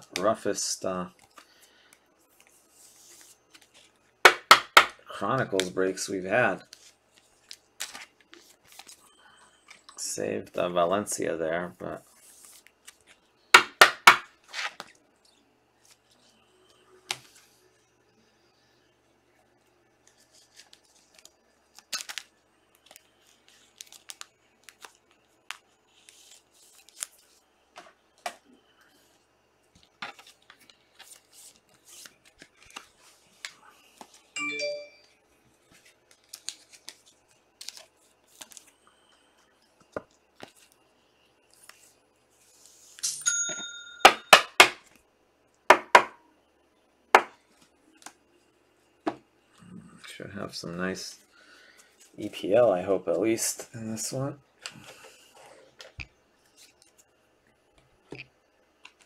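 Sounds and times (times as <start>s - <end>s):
card packs being torn open: 21.8s - 22.3s
short chime-like tone: 34.4s - 35.1s, 43.2s - 44.3s.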